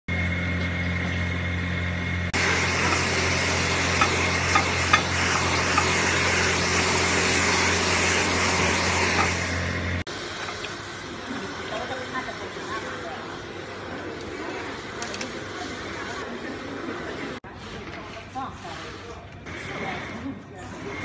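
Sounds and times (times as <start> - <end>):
hair dryer blowing air: 2.4 - 12.2.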